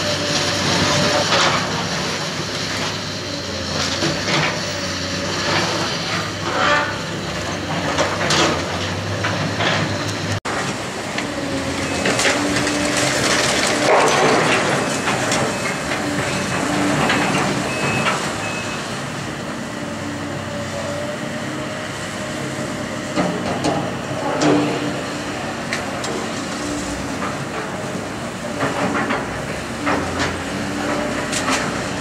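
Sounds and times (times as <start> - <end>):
excavator diesel engine: 0.0 - 32.0
debris crunching and clanking: 11.8 - 18.4.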